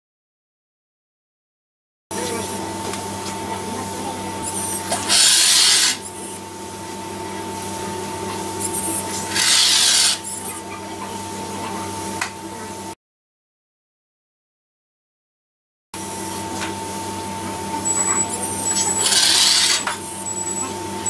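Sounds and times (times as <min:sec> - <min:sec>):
electrical hum: 0:02.1 - 0:13.0, 0:16.0 - 0:21.0
thin high whine: 0:07.0 - 0:11.8, 0:16.0 - 0:21.0.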